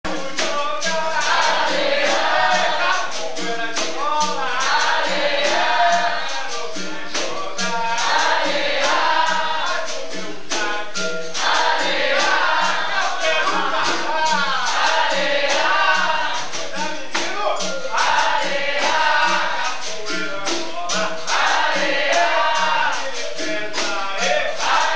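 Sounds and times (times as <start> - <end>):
berimbaus and pandeiros playing: 0.1 - 24.9
chorus of voices singing: 0.1 - 24.9.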